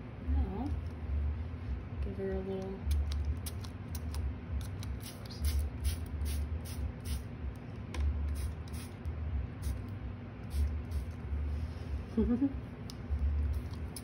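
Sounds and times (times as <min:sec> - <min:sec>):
spray bottle hissing: 0:05.0 - 0:07.2.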